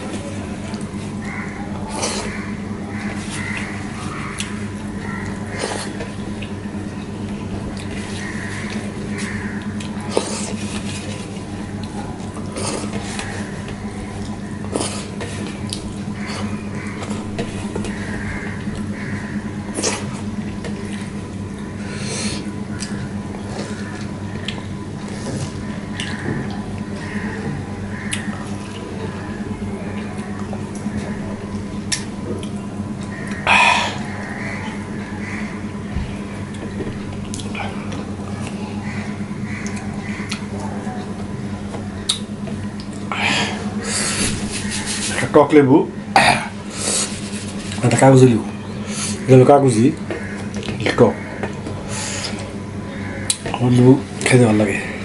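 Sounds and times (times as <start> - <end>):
wet eating sounds: 0.0 - 35.0, 35.6 - 45.3
steady low hum: 0.0 - 55.0
chewing: 36.5 - 38.6, 39.6 - 41.3.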